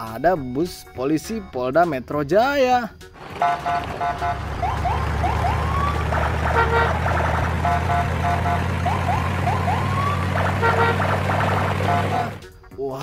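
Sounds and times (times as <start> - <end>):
low engine drone: 3.2 - 12.5
police siren whoops: 3.4 - 12.4.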